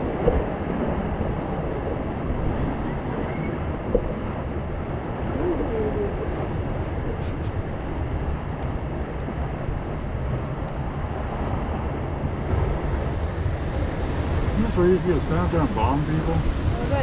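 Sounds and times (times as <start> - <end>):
wind noise on microphone: 0.0 - 17.0
rushing rapids water: 6.1 - 17.0.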